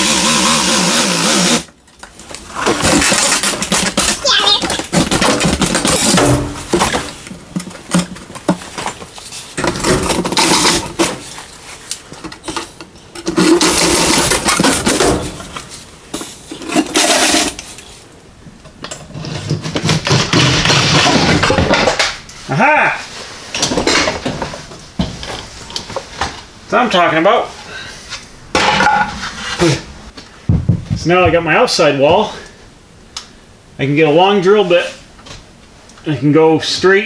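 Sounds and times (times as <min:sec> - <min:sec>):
circular saw cutting: 0:00.0 - 0:01.7.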